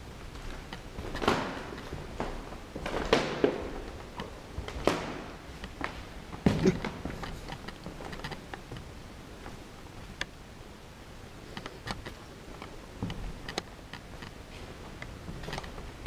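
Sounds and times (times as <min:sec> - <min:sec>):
footsteps on gritty floor: 0:00.2 - 0:09.7.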